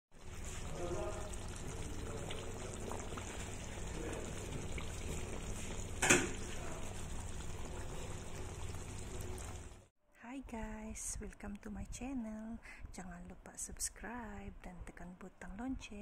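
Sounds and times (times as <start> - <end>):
sauce simmering and bubbling: 0.1 - 9.9.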